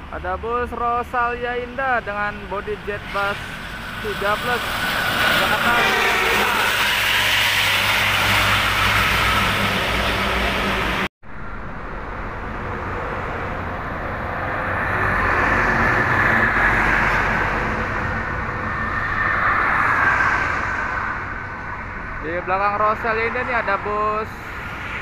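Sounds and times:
highway traffic passing: 1.5s - 25.0s.

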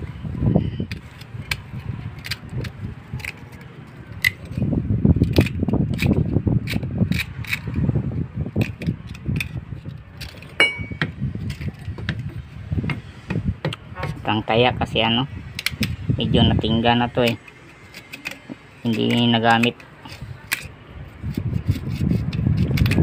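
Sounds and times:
metal blade scraping in pump: 16.7s - 23.0s.

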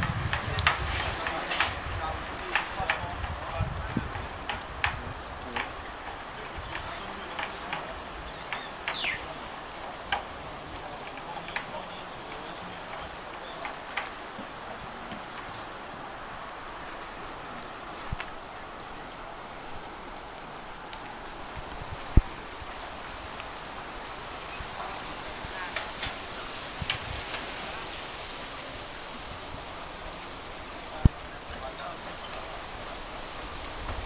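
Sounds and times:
background hiss: 0.0s - 34.0s.

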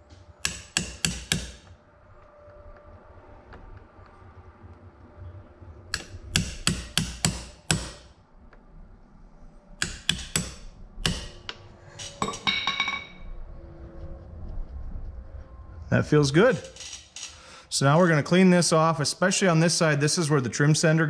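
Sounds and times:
hammer tapping on metal: 0.4s - 1.8s, 5.9s - 8.1s, 9.8s - 11.6s
metallic clinks: 12.0s - 13.2s.

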